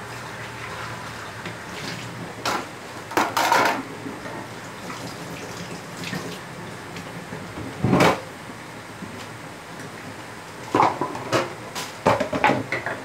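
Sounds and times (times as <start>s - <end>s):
kitchen knocks and clunks: 10.7s - 13.0s.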